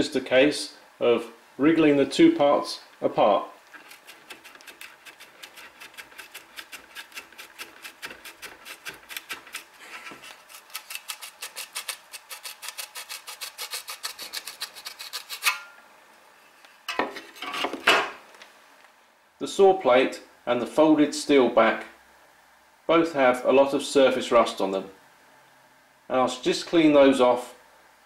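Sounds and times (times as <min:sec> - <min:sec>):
saw handle scraping rub: 0:03.7 - 0:15.6.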